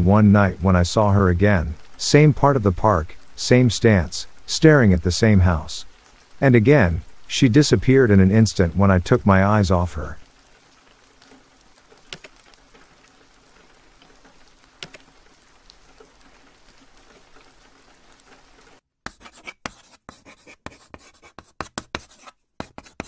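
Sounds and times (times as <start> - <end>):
faint rain: 0.0 - 18.8
scratchy scribbling strokes: 19.1 - 23.0.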